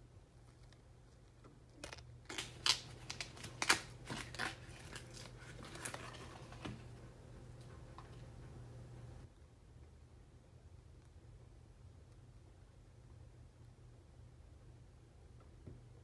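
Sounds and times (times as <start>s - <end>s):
low steady hum: 0.0s - 16.0s
bamboo sheaths crackling and tearing: 1.7s - 6.4s.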